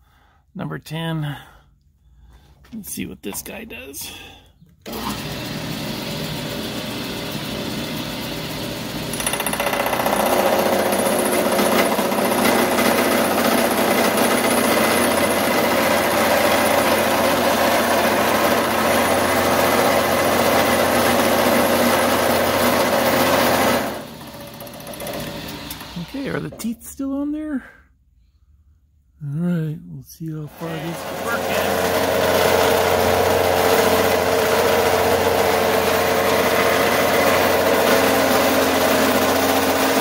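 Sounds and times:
milling machine running: 0:04.9 - 0:26.4, 0:30.5 - 0:40.0.

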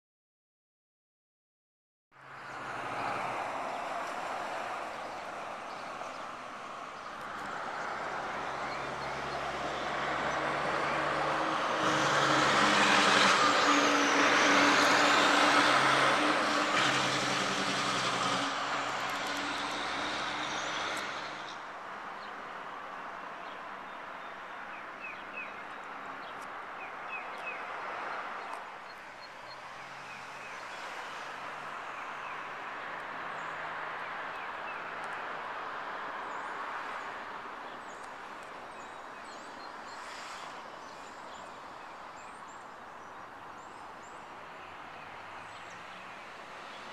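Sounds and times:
faint vehicle passing: 0:07.2 - 0:21.6
vehicle passing: 0:07.3 - 0:21.6.

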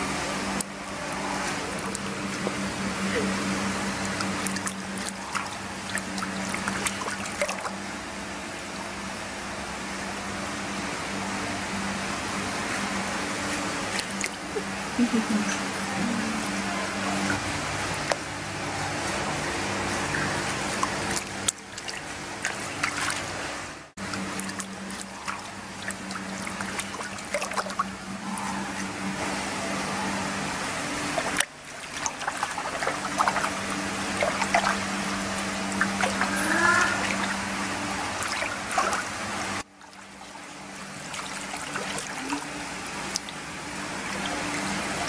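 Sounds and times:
low hum: 0:00.0 - 0:45.0
water trickling and dripping: 0:01.5 - 0:07.8, 0:19.9 - 0:29.2, 0:30.4 - 0:45.0.

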